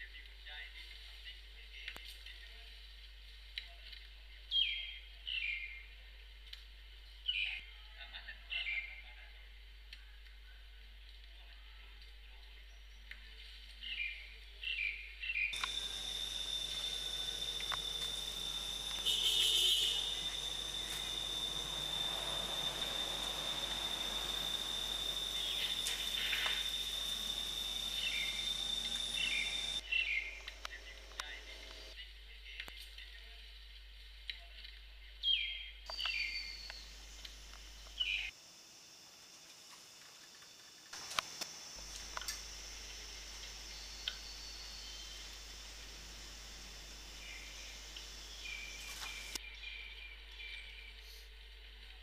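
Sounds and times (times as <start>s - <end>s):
short chirping calls: 15.5s - 31.9s, 41.9s - 49.4s
insects buzzing: 15.5s - 32.0s, 35.9s - 49.4s.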